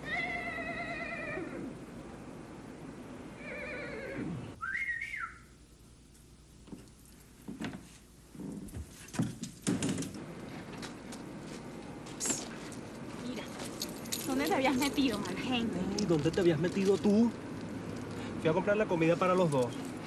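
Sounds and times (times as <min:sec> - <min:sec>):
animal calls with wavering pitch: 0:00.0 - 0:01.8
knocks and clatter: 0:08.6 - 0:10.2.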